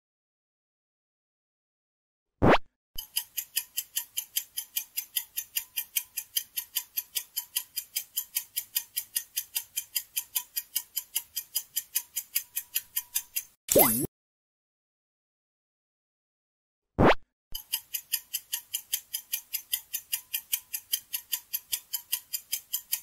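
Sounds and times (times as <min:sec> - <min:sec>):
clock ticking quickly: 0:03.0 - 0:14.1, 0:17.6 - 0:23.0.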